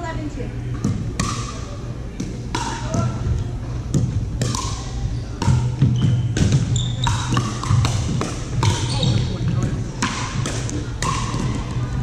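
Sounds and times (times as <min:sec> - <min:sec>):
paddles striking pickleball: 0:00.8 - 0:01.6, 0:03.9 - 0:11.8
sneakers squeaking on court: 0:04.8 - 0:09.8.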